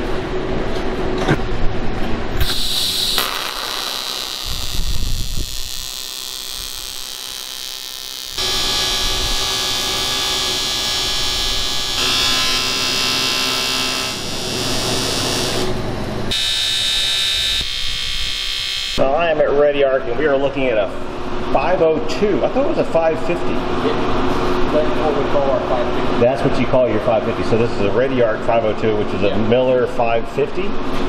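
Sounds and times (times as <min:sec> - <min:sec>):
welding arc buzzing: 0:02.4 - 0:19.0.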